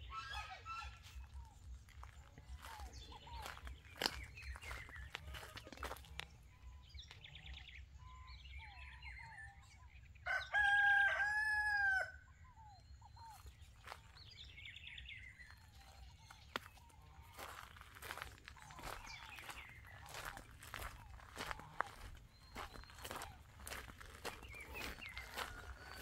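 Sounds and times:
small birds chirping: 0:00.0 - 0:11.2, 0:12.3 - 0:26.0
rooster crowing: 0:10.3 - 0:12.2, 0:25.0 - 0:26.0.

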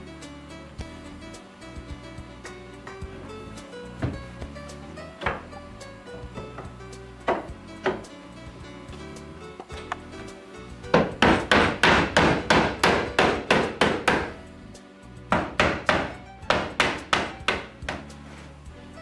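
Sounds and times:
soft background music: 0:00.0 - 0:19.0
mallet knocking on wood: 0:04.0 - 0:04.2, 0:05.2 - 0:05.5, 0:06.4 - 0:08.1, 0:10.9 - 0:14.4, 0:15.3 - 0:18.1.

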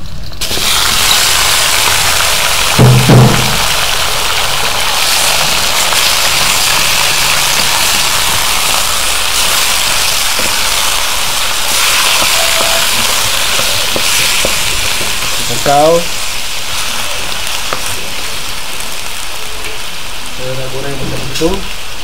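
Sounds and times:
meat sizzling in hot oil: 0:00.0 - 0:22.0
wooden spatula knocking on wok: 0:02.8 - 0:03.8, 0:09.8 - 0:15.5.

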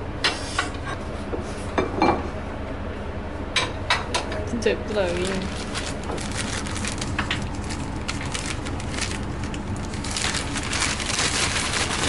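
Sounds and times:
paper bag crinkling: 0:05.0 - 0:12.0.

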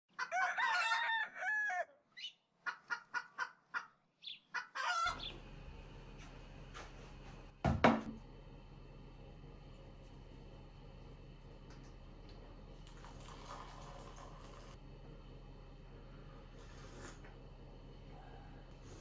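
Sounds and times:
rooster crowing: 0:00.1 - 0:02.0, 0:04.7 - 0:05.3
chicken clucking: 0:02.2 - 0:05.4
low room hum: 0:05.1 - 0:19.0.

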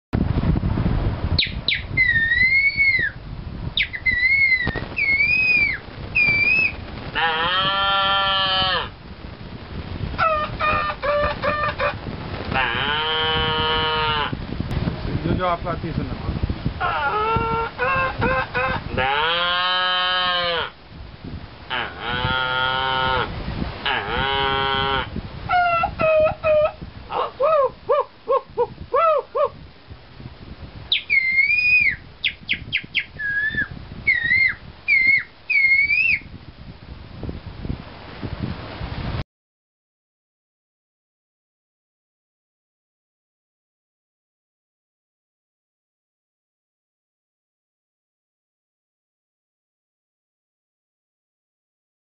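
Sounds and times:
man whistling bird calls: 0:01.4 - 0:03.2, 0:03.8 - 0:06.8, 0:30.9 - 0:36.3
throaty animal call imitation: 0:01.7 - 0:03.2, 0:03.8 - 0:09.0, 0:10.2 - 0:14.4, 0:16.8 - 0:20.8, 0:21.7 - 0:29.6, 0:30.9 - 0:36.2
man imitating cow moo: 0:07.2 - 0:08.9, 0:12.6 - 0:14.4, 0:18.9 - 0:20.8, 0:21.7 - 0:25.1.

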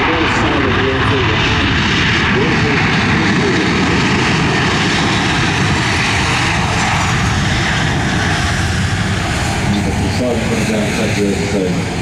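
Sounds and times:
jet engines roaring: 0:00.0 - 0:12.0.

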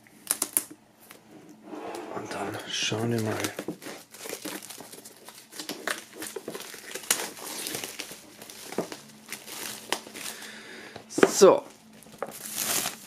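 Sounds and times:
plastic film snapping: 0:00.2 - 0:00.8, 0:03.0 - 0:10.5, 0:11.3 - 0:13.0
plastic film crinkling: 0:02.3 - 0:13.0.

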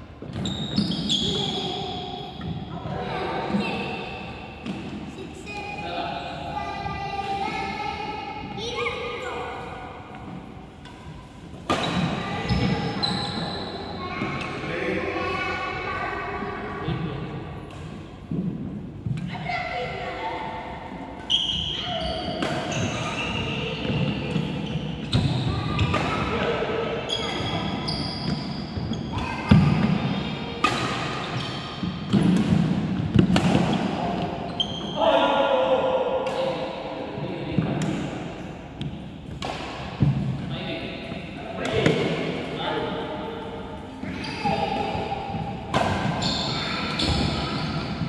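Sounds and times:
shoes squeaking on wooden floor: 0:00.2 - 0:01.7
racquets hitting shuttlecock: 0:10.3 - 0:12.6, 0:30.6 - 0:34.4, 0:37.6 - 0:40.5
players' voices: 0:29.0 - 0:48.0
racket striking shuttlecock: 0:30.6 - 0:31.2, 0:38.8 - 0:40.4.

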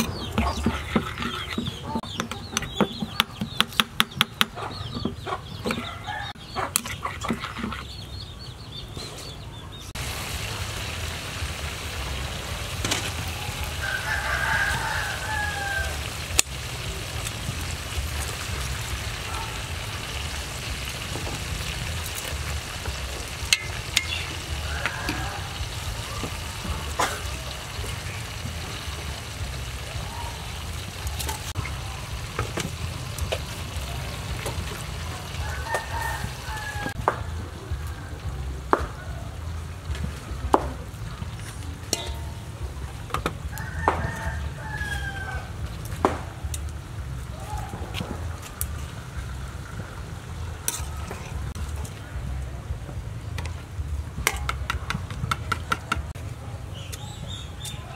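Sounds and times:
chickens clucking: 0:00.0 - 0:09.9
food sizzling in a pot: 0:10.0 - 0:37.0
tongs clicking on metal pot: 0:23.5 - 0:24.3, 0:41.9 - 0:42.4.

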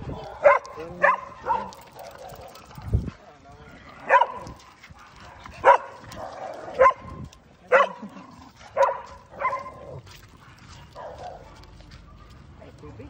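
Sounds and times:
dog barking: 0:00.4 - 0:02.8, 0:04.1 - 0:04.4, 0:05.0 - 0:08.0, 0:08.8 - 0:09.8, 0:10.4 - 0:11.6.

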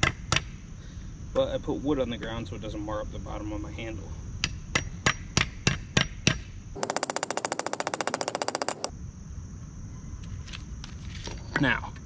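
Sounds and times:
hammer tapping a wedge: 0:06.8 - 0:08.9
rapid even clicking: 0:06.8 - 0:08.9.

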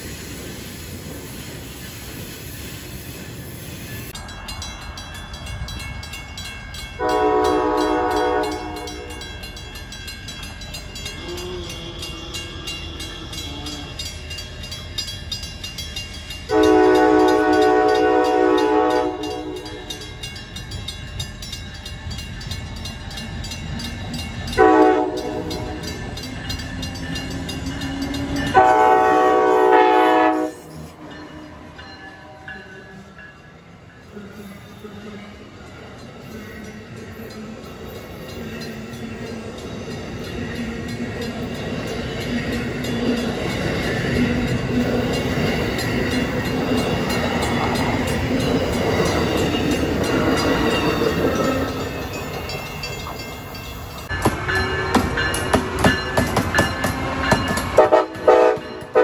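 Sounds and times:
train rumble: 0:00.0 - 0:59.0
crossing bells ringing: 0:03.1 - 0:59.0
train horn chord: 0:07.0 - 0:09.3, 0:16.5 - 0:20.0, 0:24.5 - 0:25.9, 0:28.1 - 0:32.7, 0:57.8 - 0:59.0.

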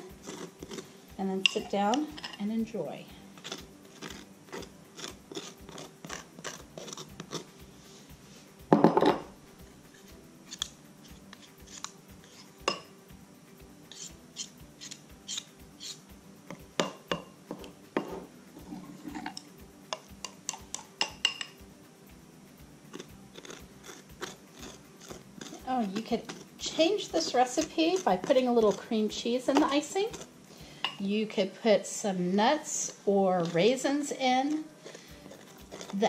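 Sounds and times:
fork scraping glass bowl: 0:00.0 - 0:02.4, 0:03.4 - 0:07.5, 0:09.9 - 0:12.8, 0:13.9 - 0:16.0, 0:22.9 - 0:31.0, 0:33.4 - 0:36.0.

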